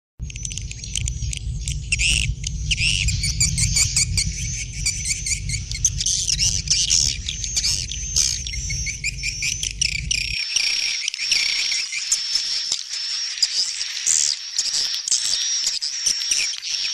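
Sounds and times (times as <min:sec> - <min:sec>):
low steady hum: 0:00.2 - 0:10.5
small birds chirping: 0:00.2 - 0:16.9.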